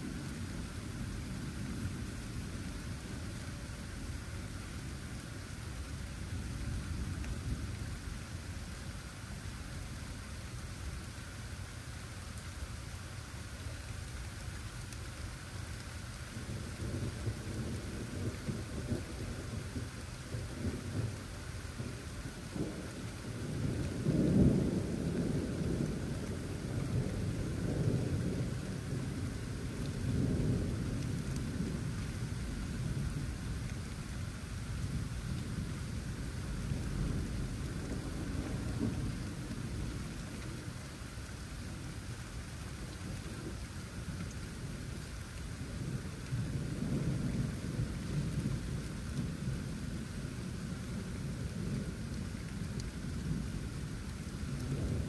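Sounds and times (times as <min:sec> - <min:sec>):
steady rain: 0:00.0 - 0:55.0
rolling thunder: 0:16.4 - 0:33.8, 0:34.8 - 0:40.8, 0:45.6 - 0:55.0.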